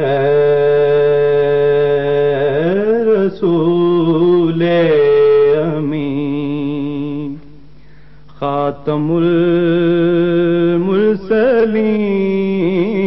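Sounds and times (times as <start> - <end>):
man singing long held notes: 0.0 - 7.4.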